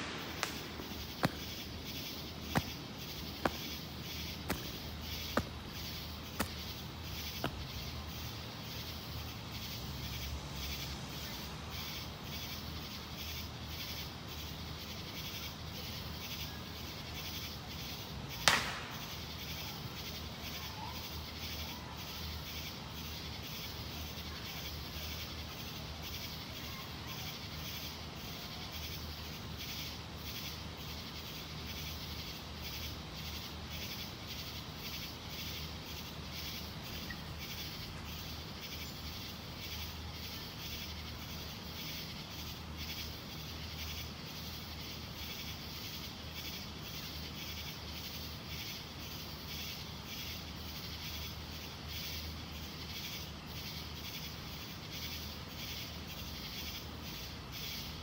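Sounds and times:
firework bang: 0.0s - 3.8s, 18.4s - 19.2s
insects chirping: 0.0s - 58.0s.

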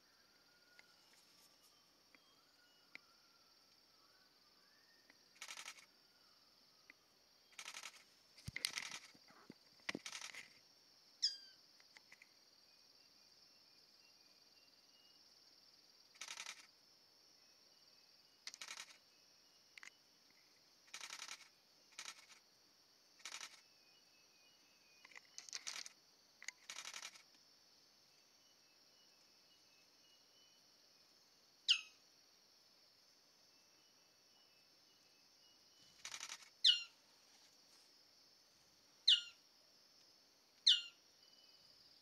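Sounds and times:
insect drone: 0.0s - 42.0s
falling whistled bird calls: 36.6s - 36.9s, 39.1s - 39.4s, 40.7s - 41.5s.

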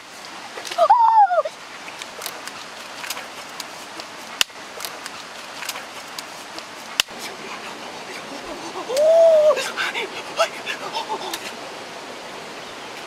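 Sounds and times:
stream water rushing: 0.0s - 13.0s
boy yelling: 0.8s - 1.5s, 8.9s - 9.6s.

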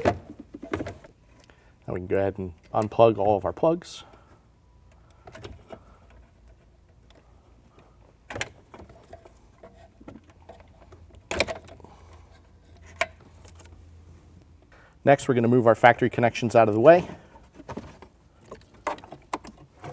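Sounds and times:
low steady hum: 0.0s - 19.9s.

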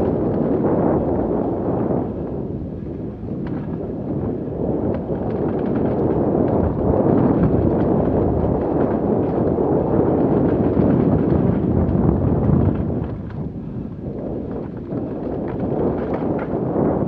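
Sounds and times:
wind buffeting microphone: 0.0s - 17.0s
bike clicks and rattles: 3.4s - 4.2s, 4.8s - 13.5s, 14.5s - 16.9s.

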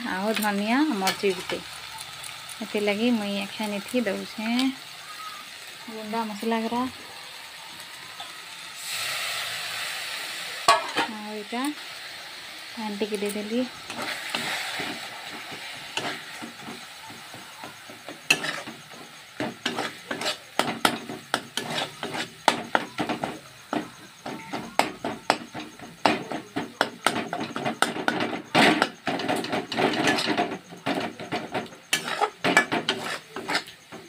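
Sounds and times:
paste frying: 0.0s - 34.0s
spatula scraping metal pot: 13.0s - 34.0s.

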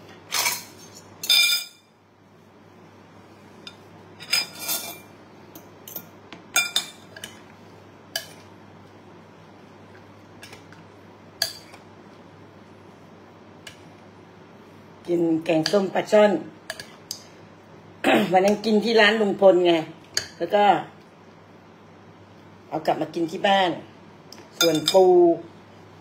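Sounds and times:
cutlery clinking on ceramic bowl: 0.3s - 1.9s, 5.8s - 7.4s, 24.6s - 25.1s.

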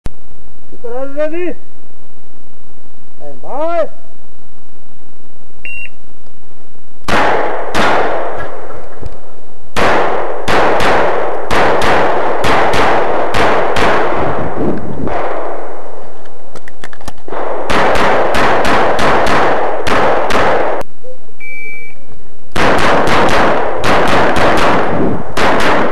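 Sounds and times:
handgun shots: 7.1s - 8.6s, 9.8s - 14.1s, 17.3s - 20.8s, 22.6s - 25.9s.

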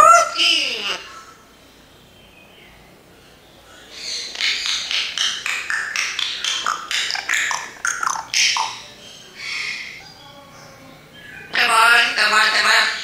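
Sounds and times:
parrot chirping and whistling: 4.6s - 8.8s.

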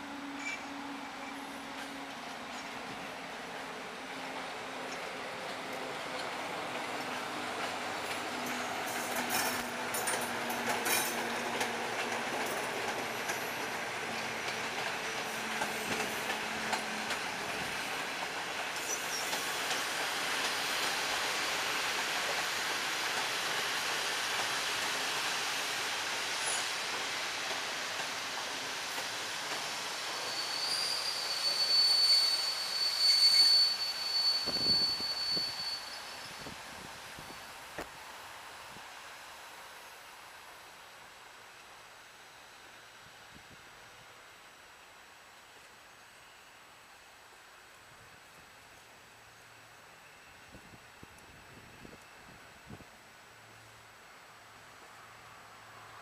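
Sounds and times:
train brake squeal: 0.2s - 2.8s, 15.4s - 17.1s, 18.8s - 21.5s, 26.3s - 26.9s, 29.6s - 37.7s
train wheels clicking over rail joints: 4.9s - 30.8s.

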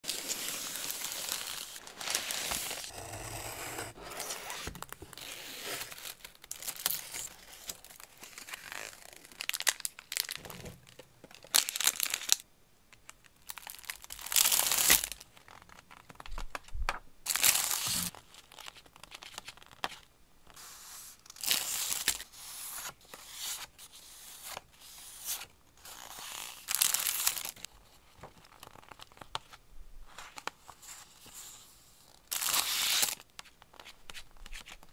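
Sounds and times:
paper mailer tearing: 0.2s - 6.1s.

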